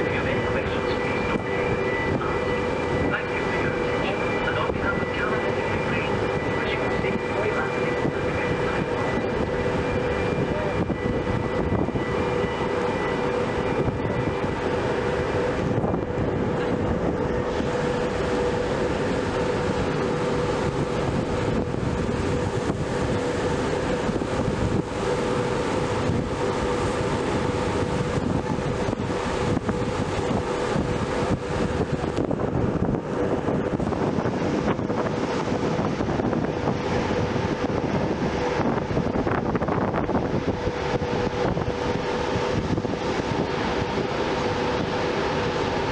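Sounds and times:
faint high whine: 0.0s - 32.9s
ship engines droning: 0.0s - 45.9s
wind on microphone: 0.0s - 45.9s.

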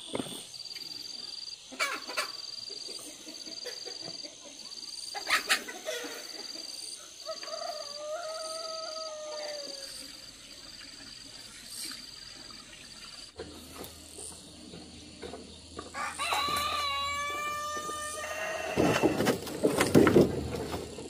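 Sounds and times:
rooster crowing: 7.2s - 9.9s, 15.9s - 19.4s.

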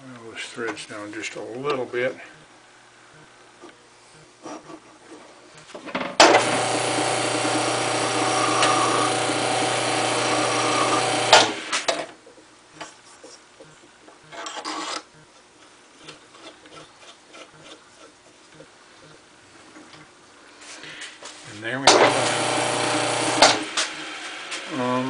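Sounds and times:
wood lathe running: 6.2s - 11.9s, 21.9s - 25.0s
file rasping on metal: 7.4s - 11.4s, 16.0s - 18.2s.

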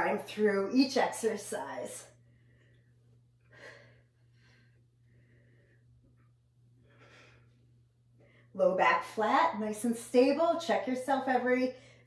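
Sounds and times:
low steady hum: 0.0s - 12.0s
woman breathing softly: 2.1s - 8.6s.

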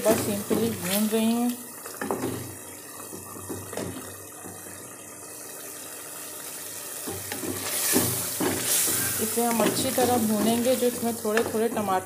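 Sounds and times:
curry sizzling in oil: 0.0s - 12.0s
spoon knocking against pot: 7.0s - 12.0s.

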